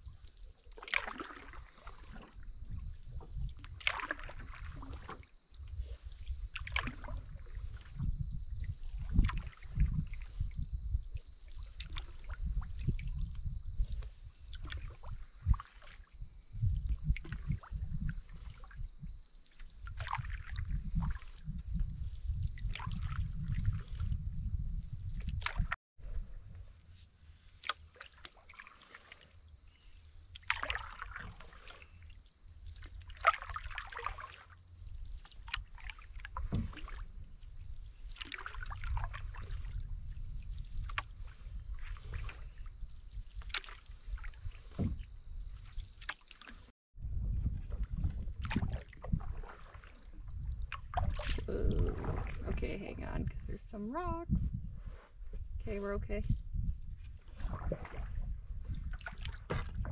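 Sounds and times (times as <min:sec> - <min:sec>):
paddle splashing in water: 0:00.0 - 0:24.2, 0:24.8 - 0:46.7, 0:47.6 - 0:54.2, 0:55.7 - 0:59.9
low rumble: 0:47.0 - 0:49.4.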